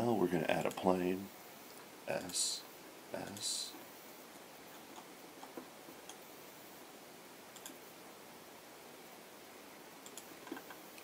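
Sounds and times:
low steady hiss: 0.0 - 11.0
computer mouse and keyboard clicks: 7.5 - 7.8, 10.0 - 11.0.

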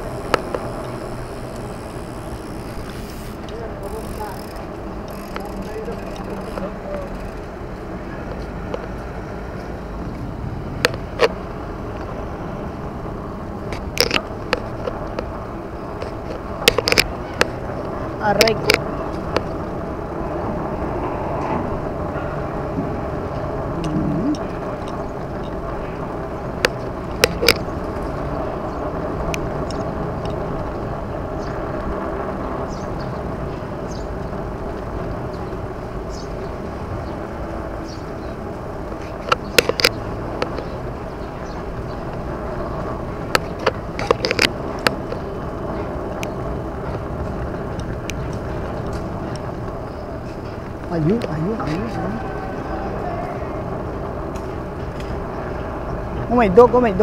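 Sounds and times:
bike clicks and rattles: 0.0 - 8.9, 13.6 - 19.9, 24.4 - 50.9
road and wind noise: 0.0 - 57.0.

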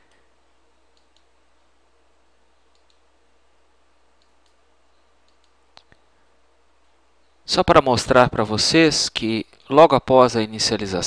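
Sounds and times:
low steady hum: 0.0 - 11.0
computer mouse clicks: 0.9 - 1.4, 2.6 - 3.1, 4.2 - 4.6, 5.2 - 6.0.

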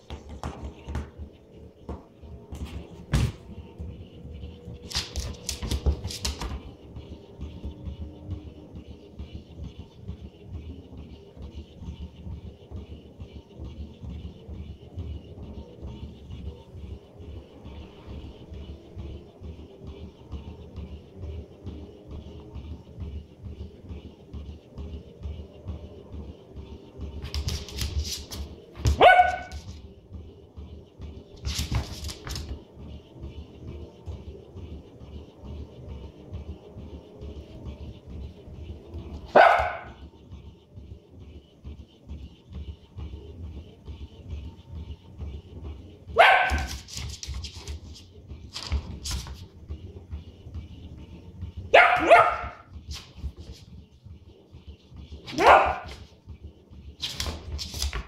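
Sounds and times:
dog scuffling: 4.9 - 6.7, 27.2 - 29.8, 31.3 - 32.6, 46.2 - 49.6, 55.1 - 56.1, 57.0 - 58.0
small dog barking: 28.9 - 29.6, 39.3 - 40.0, 46.2 - 46.7, 51.7 - 52.6, 55.3 - 56.0
small dog yipping: 29.0 - 29.6, 51.8 - 52.6.

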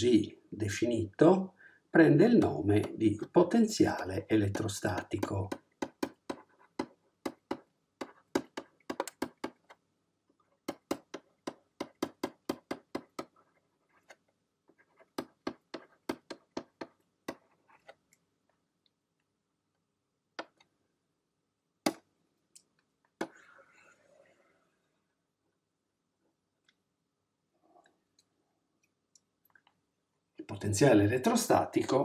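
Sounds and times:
stylus clicking on pen tablet: 2.4 - 3.4, 4.4 - 9.8, 10.6 - 18.2, 20.4 - 20.8.

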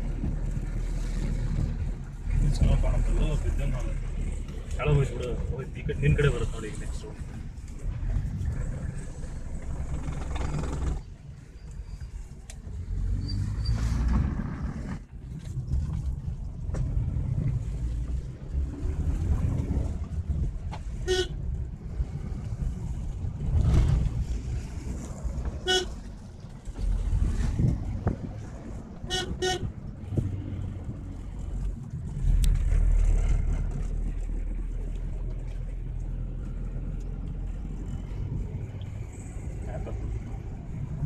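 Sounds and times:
car engine and road rumble: 0.0 - 41.0
car horn beeps: 21.0 - 21.4, 25.6 - 26.0, 29.1 - 29.7.

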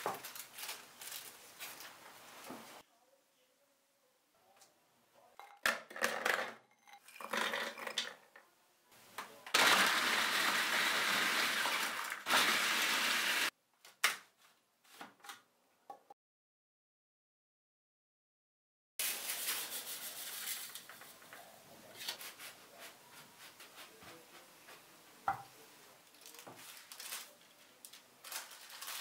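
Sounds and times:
food processor grinding: 9.6 - 13.5.

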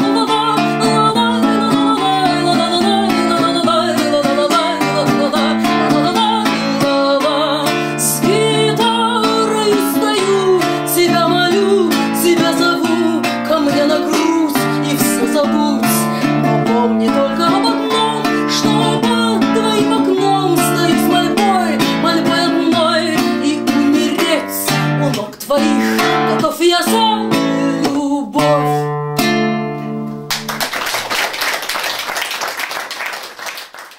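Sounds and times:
acoustic guitar playing: 0.0 - 30.8
audience applause: 30.3 - 33.9.

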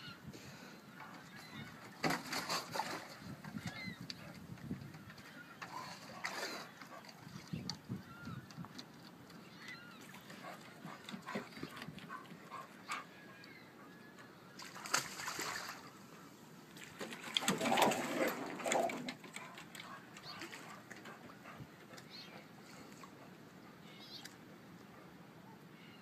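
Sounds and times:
sea otter splashing in water: 14.6 - 15.9.

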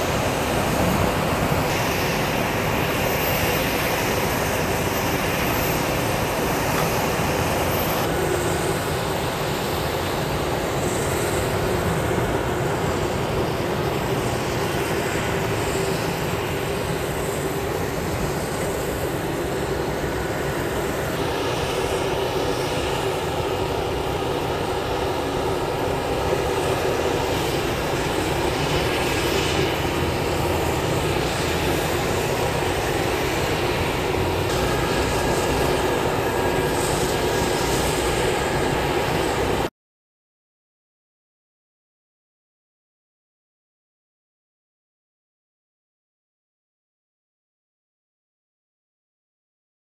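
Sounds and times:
engine drone: 0.0 - 39.7.

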